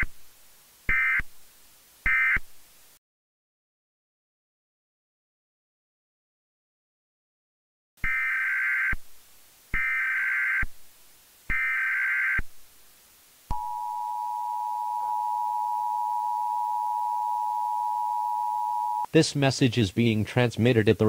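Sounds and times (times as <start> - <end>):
two-tone attention signal: 13.5 - 19.1
warbling data tones: 13.5 - 19.1.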